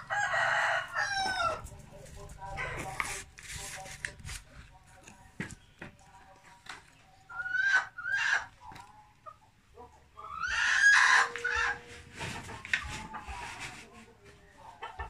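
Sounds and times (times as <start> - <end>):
rooster crowing: 0.0 - 1.6
chickens calling: 0.0 - 3.3, 6.7 - 13.8, 14.5 - 15.0.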